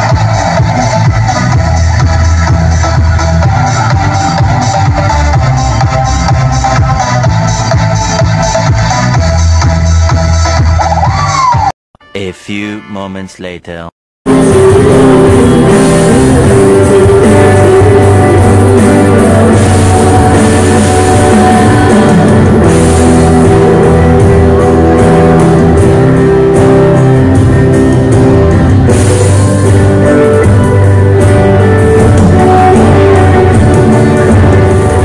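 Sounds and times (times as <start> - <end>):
pop-rock band playing: 0.0 - 11.7, 14.3 - 35.0
woman singing: 14.4 - 22.6.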